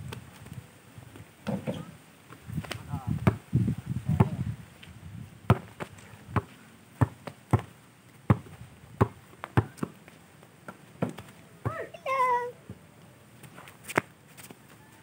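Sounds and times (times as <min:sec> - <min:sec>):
basketball bouncing on dirt: 0:01.1 - 0:03.5, 0:04.1 - 0:04.4, 0:05.4 - 0:11.9.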